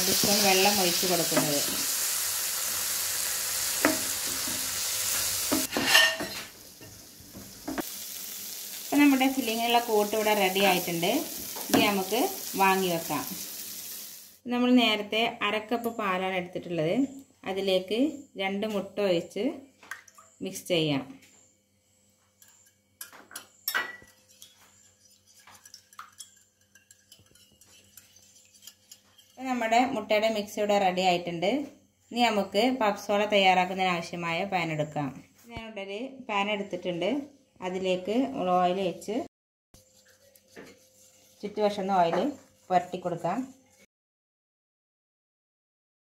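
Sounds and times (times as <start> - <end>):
food sizzling in oil: 0.0 - 14.4
spoon knocking against pan: 3.8 - 4.6
metal utensil clinking on bowl: 5.6 - 6.4, 25.3 - 29.4.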